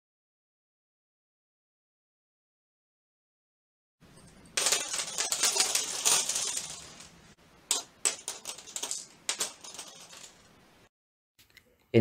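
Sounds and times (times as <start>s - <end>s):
wooden sticks clattering on paper: 4.2s - 10.6s.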